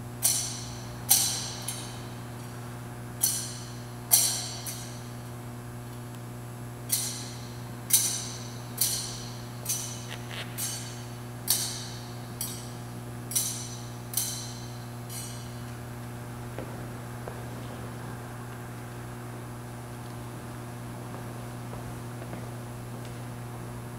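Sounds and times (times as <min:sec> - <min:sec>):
low hum: 0:00.0 - 0:23.9
censer clinking against chains: 0:06.9 - 0:10.0, 0:10.6 - 0:15.7.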